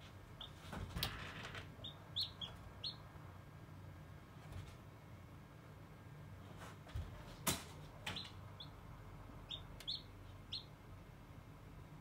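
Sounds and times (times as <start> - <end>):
chick peeping: 0.4 - 0.7, 1.8 - 3.1, 8.1 - 8.8, 9.4 - 10.8.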